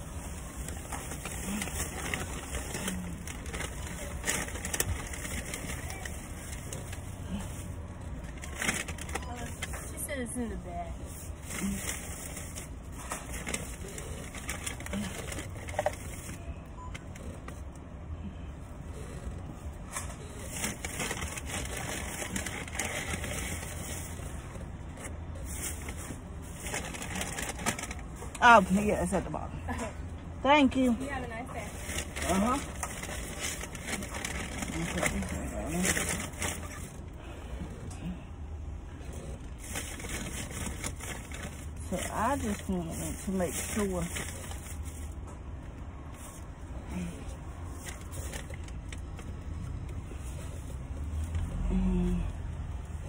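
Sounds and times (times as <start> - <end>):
takeout bag rustling: 0.0 - 10.1, 19.8 - 28.8, 31.5 - 37.1, 39.1 - 45.3
low hum inside car: 0.0 - 53.0.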